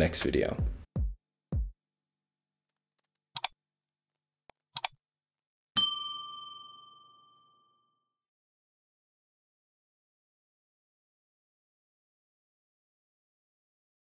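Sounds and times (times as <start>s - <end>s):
notification bell ding: 5.8s - 7.4s.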